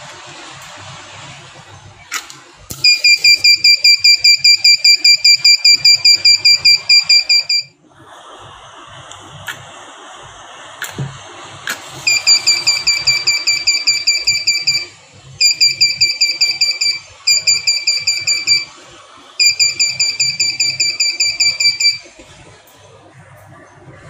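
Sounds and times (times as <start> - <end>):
alarm buzzer beeping: 2.8 - 7.7, 12.0 - 18.7, 19.4 - 22.1.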